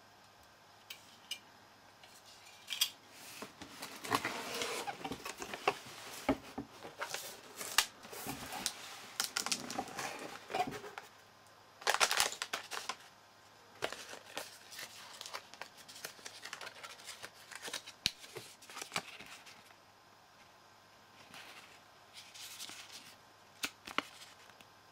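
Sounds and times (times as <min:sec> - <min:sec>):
plastic and paper rustling: 0:03.2 - 0:11.1, 0:11.8 - 0:13.1, 0:13.8 - 0:19.7.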